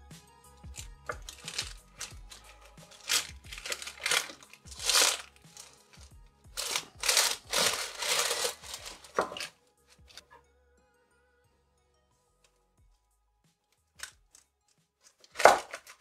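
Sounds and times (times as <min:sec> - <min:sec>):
baking paper crinkling: 0:01.1 - 0:09.5, 0:15.0 - 0:16.0.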